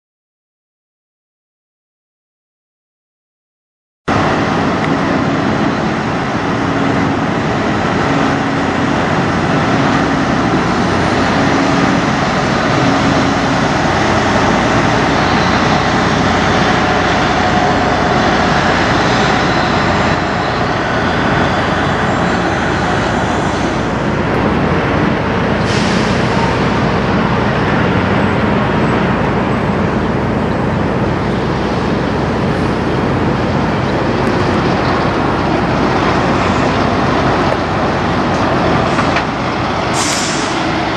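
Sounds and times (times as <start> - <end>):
diesel trucks driving past: 4.1 - 40.9
air brakes hissing: 25.5 - 26.8, 39.9 - 40.8.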